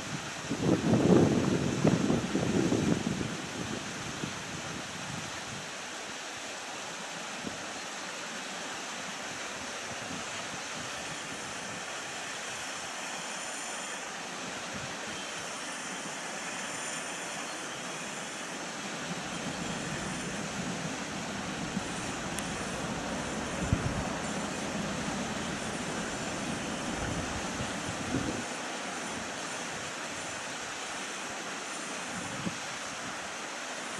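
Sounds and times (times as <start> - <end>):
distant jet engines rushing: 10.9 - 33.9.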